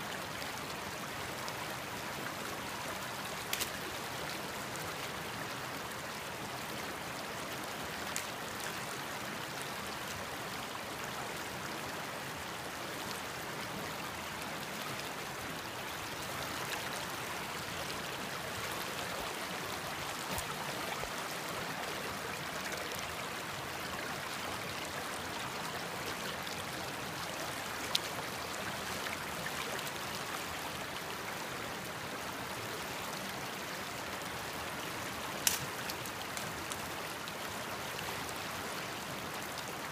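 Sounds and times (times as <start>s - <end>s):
creek water rushing over rocks: 0.0s - 39.9s.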